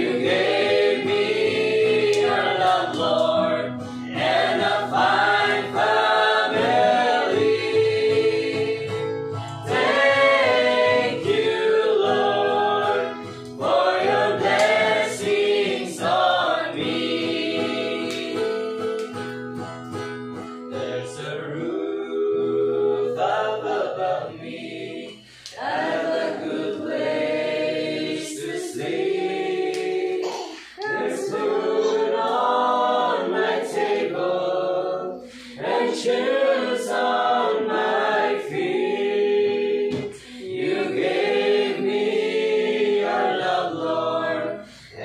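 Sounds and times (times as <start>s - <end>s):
group singing a hymn: 0.0s - 19.0s, 20.6s - 45.0s
acoustic guitar: 0.0s - 34.2s, 39.4s - 42.1s, 42.9s - 45.0s.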